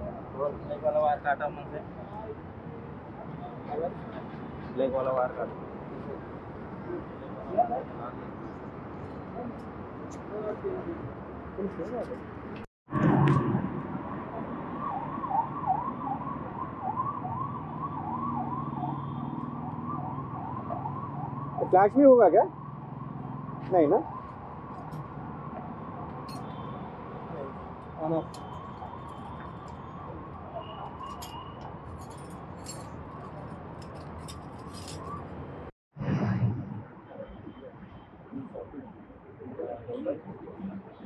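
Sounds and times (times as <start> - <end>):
electronic siren warbling: 14.0 - 27.1
metal tools clinking and rattling: 26.3 - 26.5, 30.9 - 35.2.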